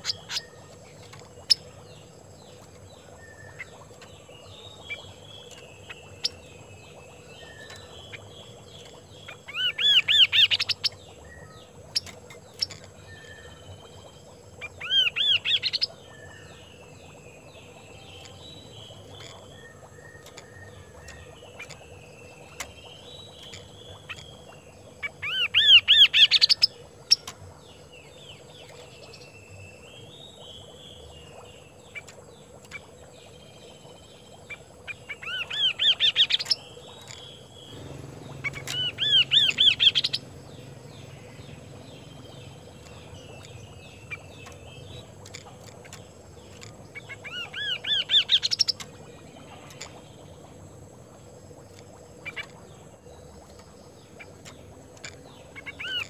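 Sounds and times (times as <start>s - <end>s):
faint bird warbling and chattering: 0.0s - 29.3s, 30.4s - 56.0s
bird singing ringing notes: 35.2s - 45.2s.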